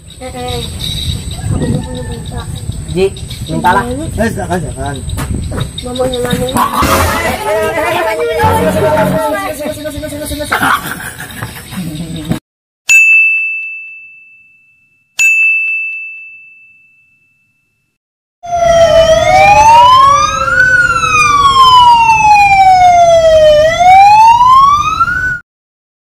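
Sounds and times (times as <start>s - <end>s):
ambulance siren wailing: 6.8s - 9.5s, 18.4s - 25.4s
bright ding: 12.9s - 17.6s.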